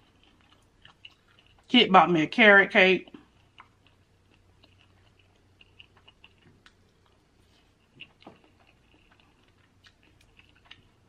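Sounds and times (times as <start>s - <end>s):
quiet chewing: 0.0s - 1.7s, 3.0s - 11.0s.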